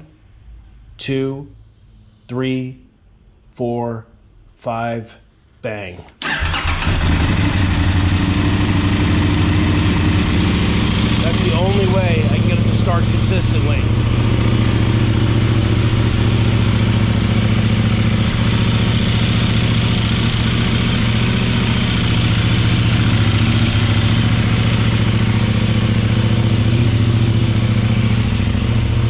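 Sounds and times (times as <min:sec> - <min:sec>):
motorcycle engine idling: 0:06.3 - 0:29.0.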